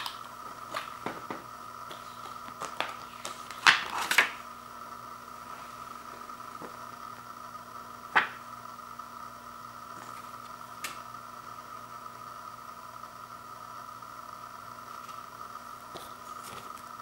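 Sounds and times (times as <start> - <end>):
steady background hum: 0.0 - 17.0
paper card snapping: 1.9 - 4.4, 8.2 - 8.4.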